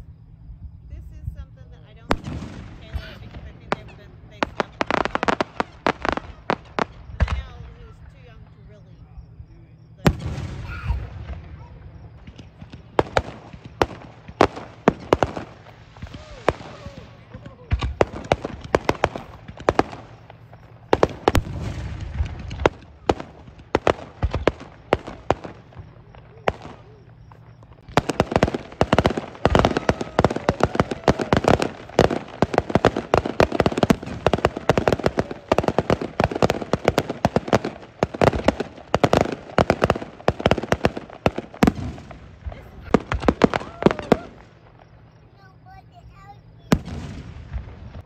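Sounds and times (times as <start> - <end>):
fireworks crackling: 0.0 - 48.0
fireworks bangs and pops: 1.1 - 48.0.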